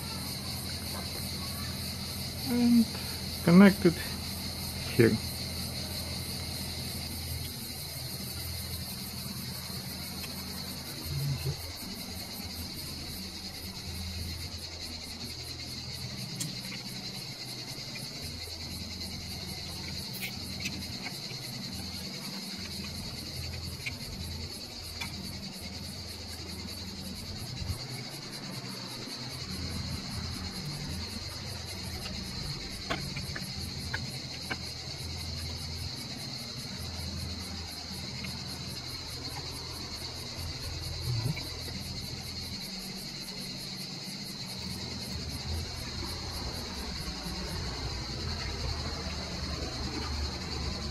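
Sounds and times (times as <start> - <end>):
insects chirping: 0.0 - 50.9
low hum: 39.0 - 43.6.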